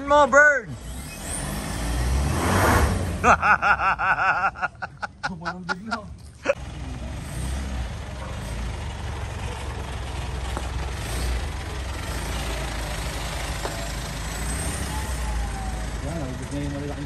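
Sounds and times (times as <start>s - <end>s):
pickup truck engine driving past: 6.6s - 17.0s.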